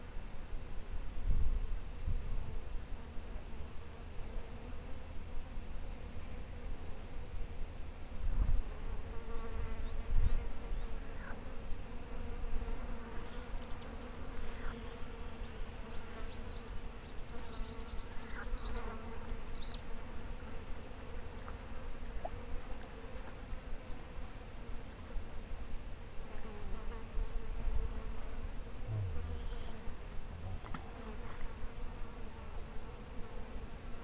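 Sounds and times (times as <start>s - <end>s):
flying insect buzzing: 8.4s - 24.9s, 26.1s - 34.0s.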